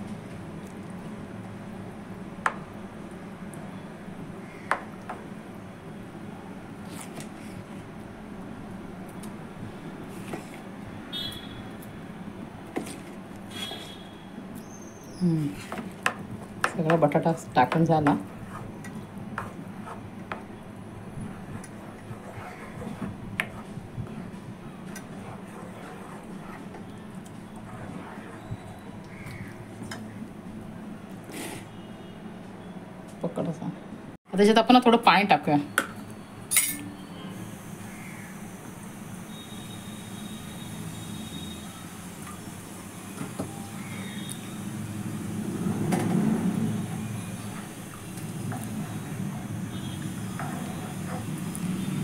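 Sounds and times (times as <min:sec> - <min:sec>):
spoon stirring in a pan: 0:15.5 - 0:30.1.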